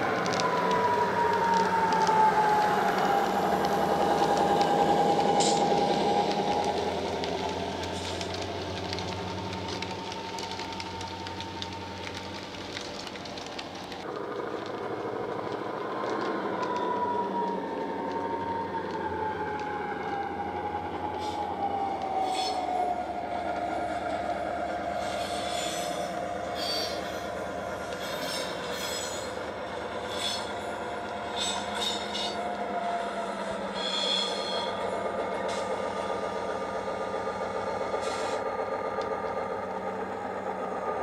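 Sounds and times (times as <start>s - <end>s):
whining tone gliding down: 0.0s - 12.2s
clicks from wheels and track: 0.0s - 20.4s, 27.8s - 32.6s
model diesel engine sound: 0.0s - 41.0s.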